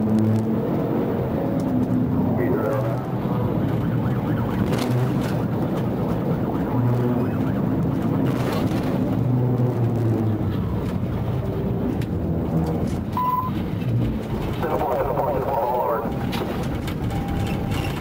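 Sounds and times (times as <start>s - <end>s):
car engine and road noise: 0.0s - 18.0s.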